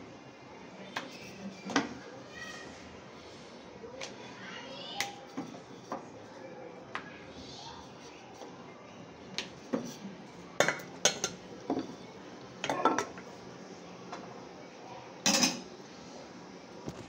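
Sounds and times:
metal utensils and dishes clattering: 15.3 - 15.7.

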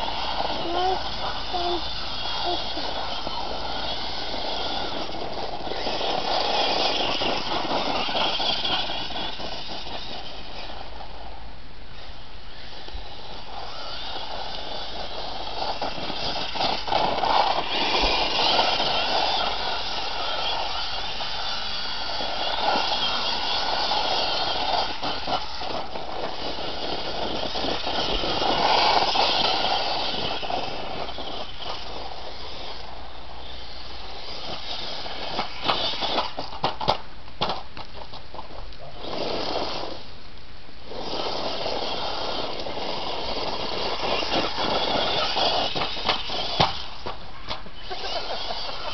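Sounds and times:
electric motor whining: 0.0 - 10.9, 12.0 - 36.5, 40.9 - 48.9
tyres rolling over gravel: 0.0 - 11.4, 12.7 - 40.1, 40.8 - 48.9.

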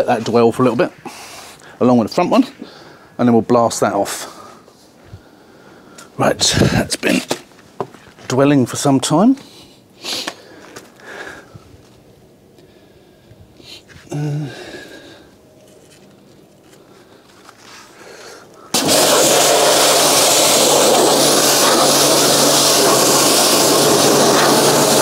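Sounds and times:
pressure washer jet spraying: 18.7 - 25.0
pressure washer motor humming: 18.8 - 25.0.

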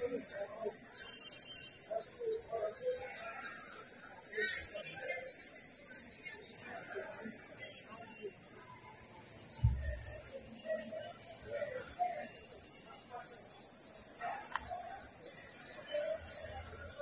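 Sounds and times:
cicadas buzzing: 0.0 - 17.0
low thump: 9.6 - 10.1.

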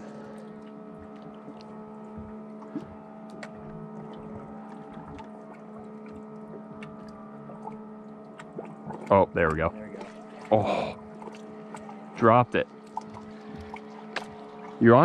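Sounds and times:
faint ticks and clicks: 0.0 - 12.0
boat motor humming: 0.0 - 15.0.

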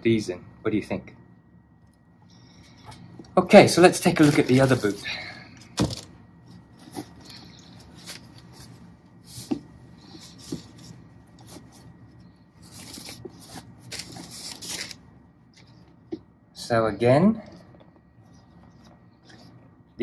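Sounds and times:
cloth bag and tissue rustling: 3.7 - 5.2, 5.9 - 15.0.

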